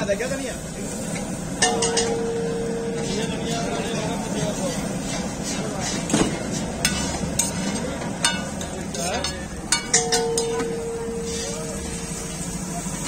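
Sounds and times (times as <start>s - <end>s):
metal spatula scraping griddle: 0.9s - 13.0s
steady tone: 1.6s - 4.3s, 9.7s - 12.9s.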